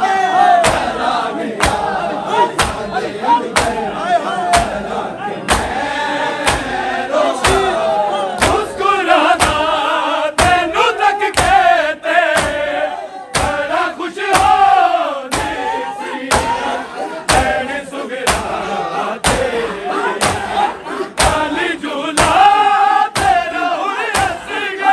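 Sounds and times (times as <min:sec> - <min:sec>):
men chanting in unison: 0:00.0 - 0:24.9
hand strikes on chest: 0:05.5 - 0:05.7, 0:06.4 - 0:06.8, 0:13.4 - 0:13.7, 0:14.3 - 0:14.6, 0:15.3 - 0:15.6, 0:18.3 - 0:18.6, 0:20.2 - 0:20.5, 0:21.2 - 0:21.5.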